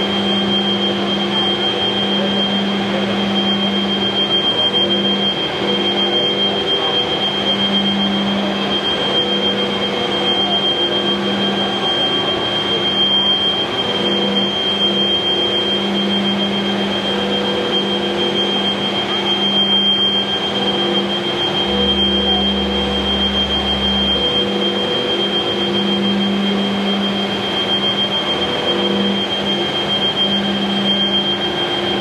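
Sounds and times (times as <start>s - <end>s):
high machinery whine: 0.0s - 32.0s
low machinery hum: 0.0s - 32.0s.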